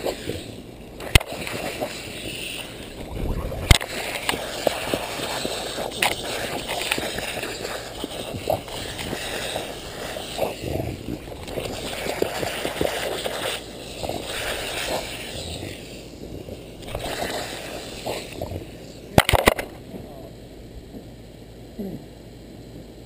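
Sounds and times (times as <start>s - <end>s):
sprinkler water spraying: 0.0s - 19.7s
dog snapping and lapping water: 1.0s - 15.7s, 16.8s - 18.6s.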